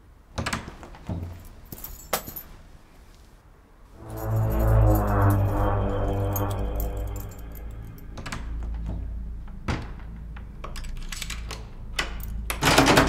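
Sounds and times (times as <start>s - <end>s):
steady low drone: 4.0s - 10.6s.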